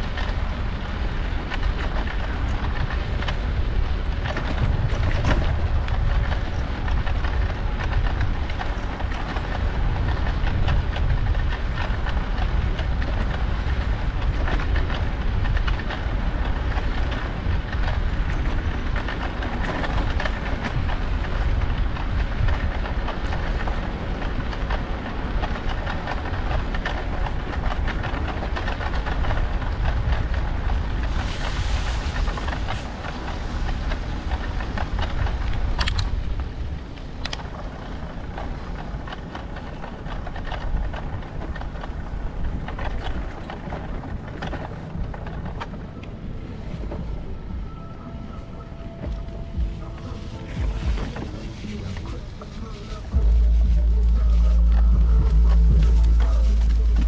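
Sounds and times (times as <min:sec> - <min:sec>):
bicycle rolling rumble: 0:00.0 - 0:57.0
dense continuous rattle: 0:00.0 - 0:57.0
wind buffeting microphone: 0:00.0 - 0:57.0.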